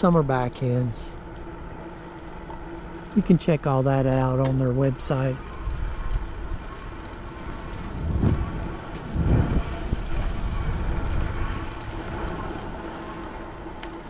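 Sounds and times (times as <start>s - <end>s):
bicycle rolling noise: 0.0s - 14.0s
wind rumbling on microphone: 5.4s - 14.0s.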